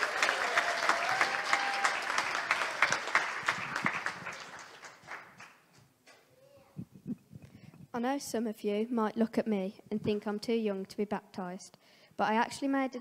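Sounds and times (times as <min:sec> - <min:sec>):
congregation applauding: 0:00.0 - 0:05.7.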